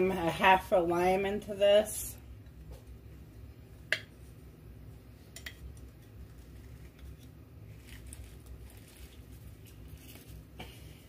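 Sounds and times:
lime squeezer squishing: 5.5s - 10.5s.

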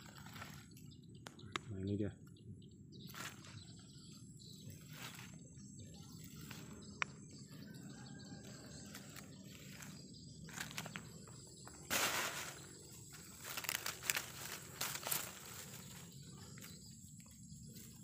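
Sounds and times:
leaves and undergrowth rustling: 0.0s - 0.9s, 3.1s - 3.6s, 4.6s - 6.8s, 8.7s - 11.1s, 11.7s - 18.0s
outdoor background noise: 0.0s - 18.0s.

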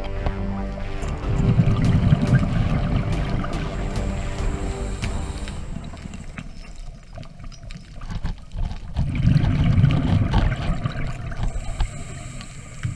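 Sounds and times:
underwater rumble and bubbles: 0.0s - 12.9s
faint clicks: 5.0s - 12.9s.

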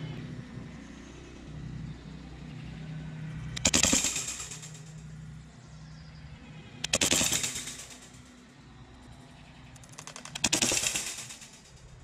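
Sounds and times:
targets clattering: 3.6s - 5.0s, 6.9s - 8.3s, 9.8s - 12.0s.

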